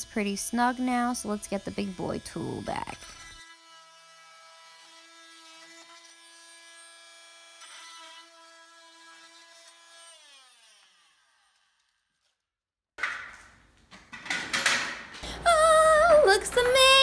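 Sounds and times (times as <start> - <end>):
oscillating multi-tool buzzing: 0.0 - 12.3.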